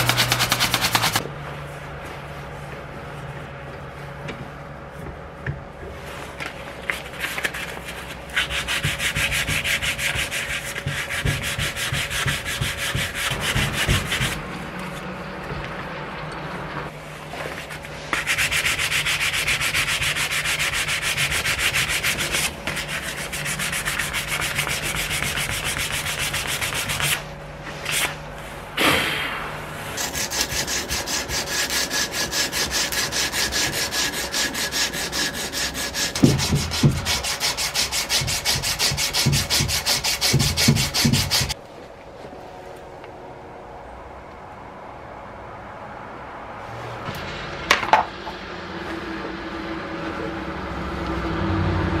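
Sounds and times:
sandpaper sanding wood: 0.0s - 1.2s, 7.2s - 14.6s, 17.9s - 28.1s, 30.0s - 41.6s.

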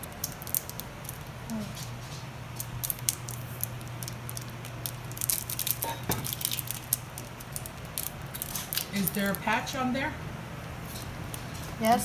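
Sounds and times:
paper and plastic wrapping rustling: 0.0s - 9.4s
steady low hum: 0.0s - 12.0s.

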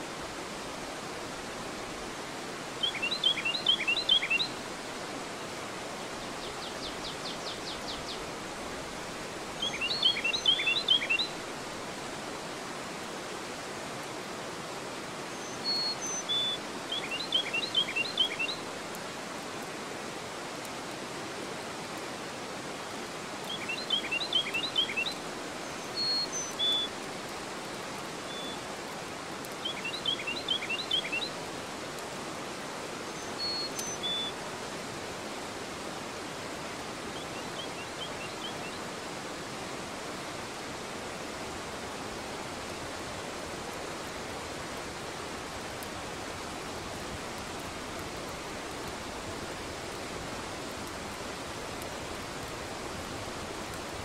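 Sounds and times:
river water rushing over weir: 0.0s - 54.0s
songbird singing: 2.7s - 5.0s, 6.1s - 8.3s, 9.5s - 11.4s, 15.3s - 18.6s, 23.4s - 27.3s, 28.2s - 28.7s, 29.4s - 31.4s, 33.0s - 34.4s, 37.0s - 39.0s.

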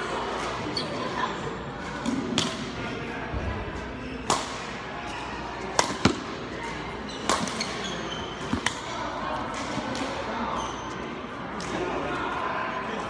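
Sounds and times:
racket hitting shuttlecock: 4.2s - 4.7s, 5.7s - 6.4s, 7.2s - 7.8s, 8.4s - 10.2s.

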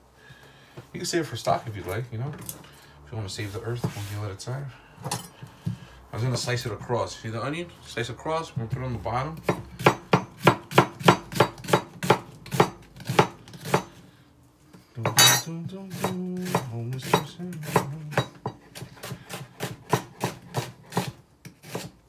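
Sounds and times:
knife slicing onion on board: 9.4s - 14.0s, 15.9s - 22.0s.

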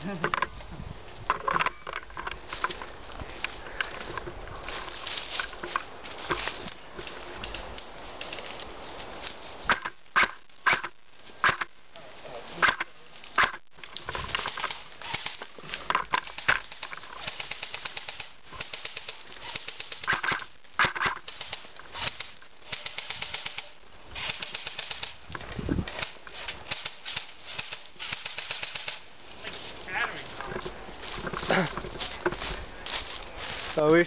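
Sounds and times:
footsteps on dry leaves: 2.1s - 9.7s, 23.9s - 34.0s.

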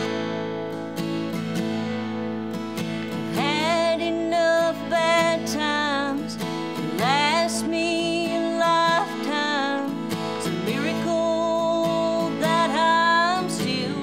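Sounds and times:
acoustic guitar strumming: 0.0s - 14.0s
woman singing: 3.3s - 14.0s.

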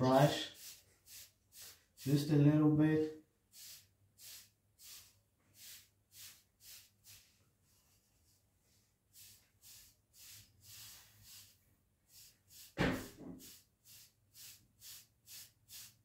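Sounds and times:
loud thump: 12.8s - 13.4s.

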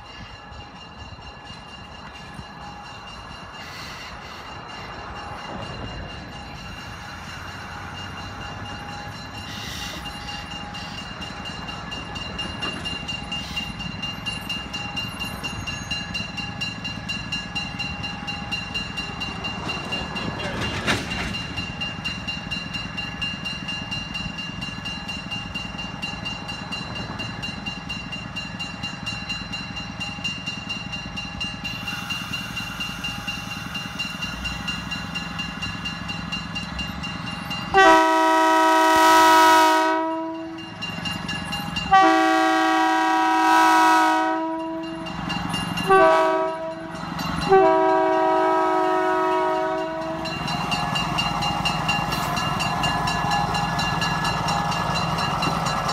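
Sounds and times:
train air horn blasts: 37.8s - 40.6s, 41.9s - 44.8s, 45.9s - 46.9s, 47.5s - 50.2s.

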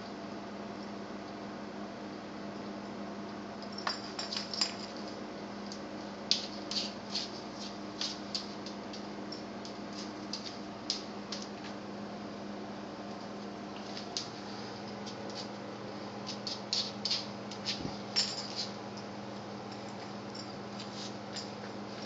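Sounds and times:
steady low hum: 0.0s - 22.0s
dog claws tapping on tile: 3.8s - 11.8s, 16.2s - 18.8s.

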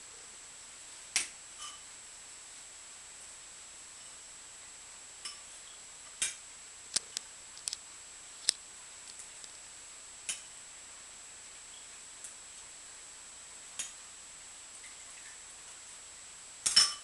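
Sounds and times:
faint high-pitched whine: 0.0s - 17.0s
sharp clicks and taps: 6.9s - 7.8s.

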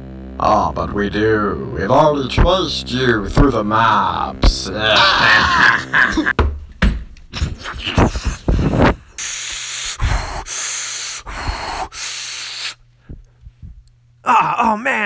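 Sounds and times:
low steady hum: 0.0s - 15.0s
man breathing heavily: 7.4s - 13.9s.

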